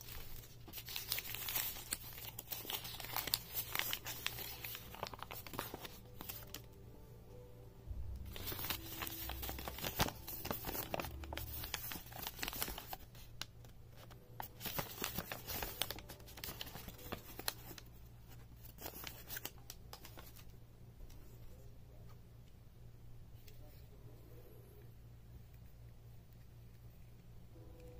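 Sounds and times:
paper crinkling and rustling: 0:00.0 - 0:06.8, 0:08.2 - 0:20.5.

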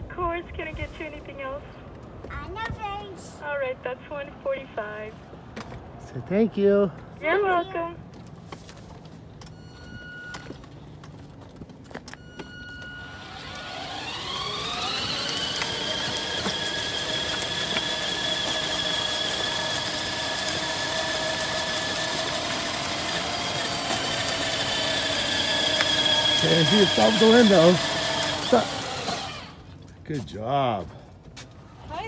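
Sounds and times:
short beeps: 0:09.5 - 0:10.6, 0:12.1 - 0:13.2
toy car electric motors whining: 0:12.1 - 0:29.8.

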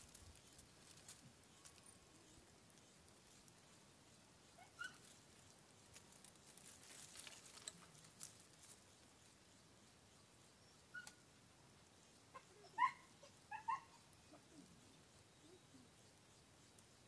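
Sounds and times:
marmosets rustling in dry leaves: 0:00.0 - 0:10.0.

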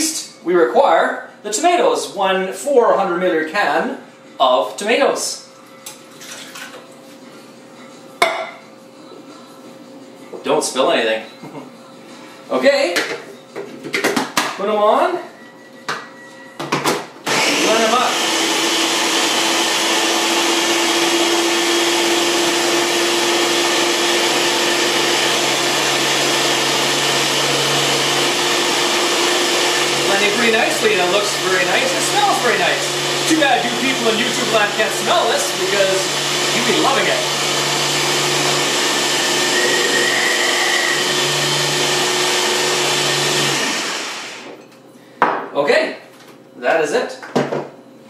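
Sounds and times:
electric blender running: 0:17.2 - 0:44.6
food chopper motor whine: 0:17.2 - 0:44.6.

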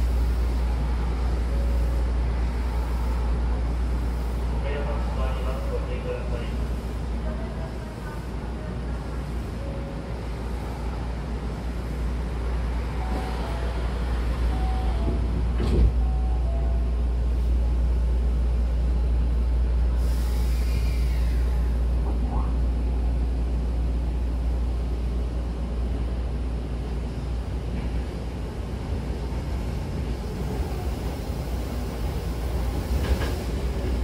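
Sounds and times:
train running noise: 0:00.0 - 0:34.0
sliding doors thudding shut: 0:15.0 - 0:16.0.

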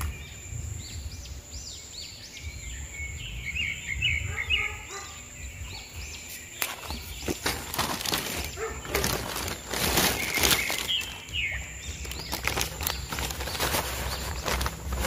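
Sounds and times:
birds chirping: 0:00.0 - 0:15.0
hands working gritty soil: 0:06.3 - 0:15.0.

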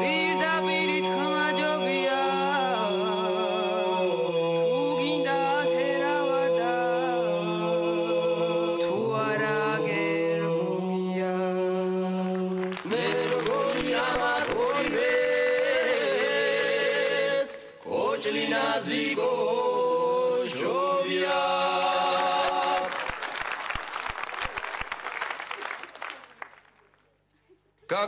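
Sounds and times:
people clapping: 0:12.2 - 0:16.6, 0:21.6 - 0:27.2.

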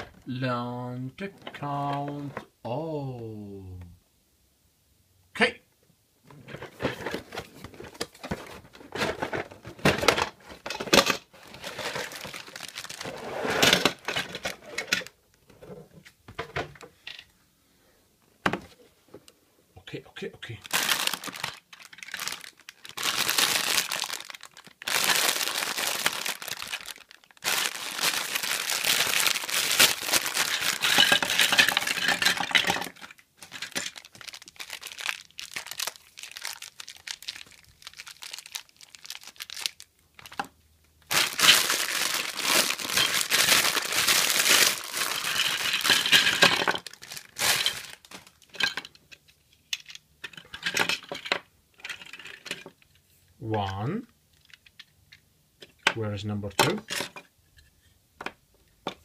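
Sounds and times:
plastic bricks clattering: 0:06.4 - 0:15.2, 0:20.7 - 0:52.8
plastic bags crinkling: 0:06.7 - 0:15.2, 0:20.5 - 0:49.0.

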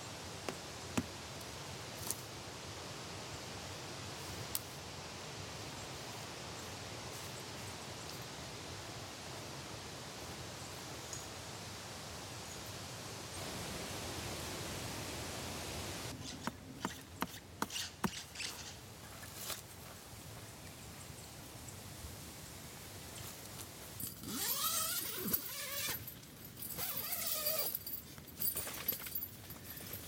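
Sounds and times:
handling clicks and knocks: 0:26.6 - 0:30.0.

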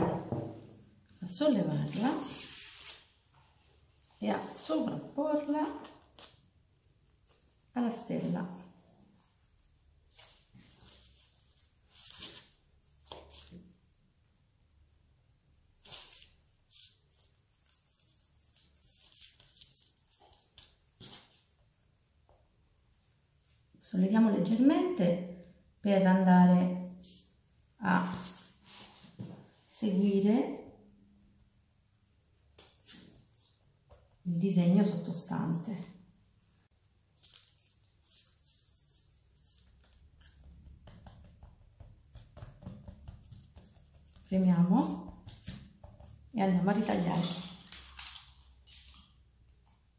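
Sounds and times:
parchment paper rustling: 0:01.8 - 0:06.5, 0:07.1 - 0:13.8, 0:15.8 - 0:21.8, 0:36.4 - 0:47.8
palms brushing on dough: 0:38.2 - 0:46.8.

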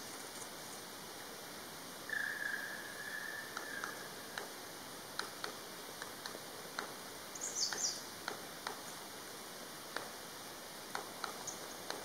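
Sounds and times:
woodpecker long call: 0:02.1 - 0:04.4
faint ticks: 0:03.5 - 0:09.0, 0:09.9 - 0:10.2, 0:10.9 - 0:12.0.

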